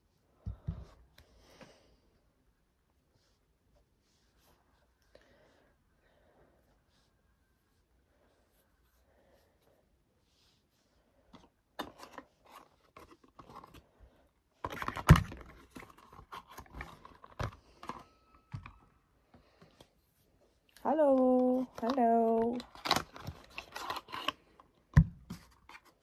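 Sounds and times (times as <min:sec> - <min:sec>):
cardboard carton clicking and crinkling: 0:21.4 - 0:24.4.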